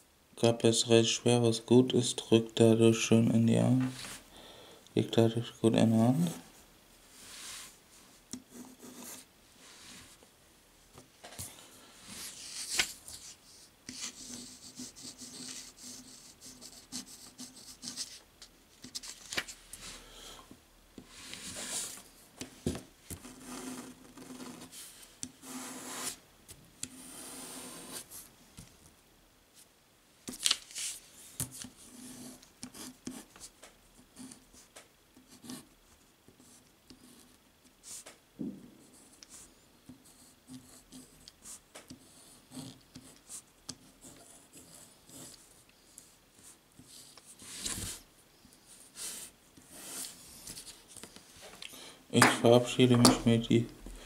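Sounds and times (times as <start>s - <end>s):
pen scratching across paper: 12.1s - 18.2s, 23.2s - 24.8s, 25.4s - 26.2s, 26.9s - 28.2s, 40.0s - 45.5s, 49.0s - 50.6s.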